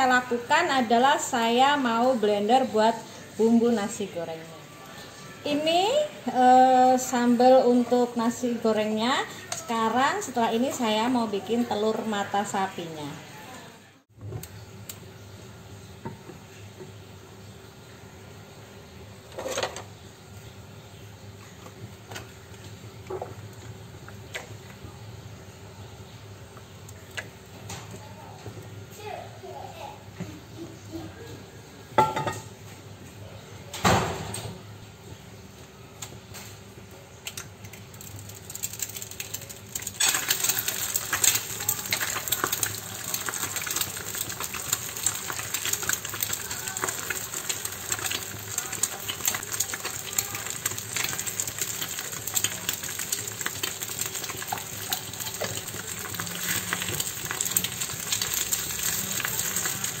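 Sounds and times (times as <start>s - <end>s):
egg sizzling in hot oil: 37.3s - 60.0s.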